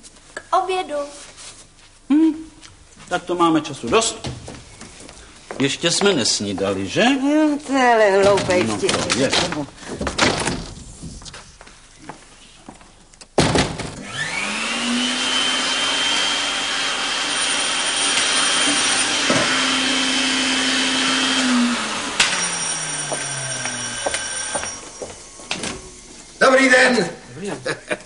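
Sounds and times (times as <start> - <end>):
vacuum cleaner motor whine: 14.0 - 26.4.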